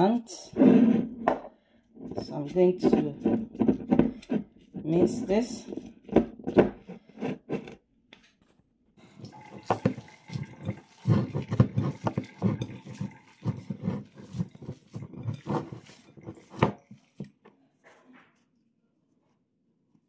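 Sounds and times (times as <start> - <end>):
wet squelching of food mixing: 9.0 - 17.8.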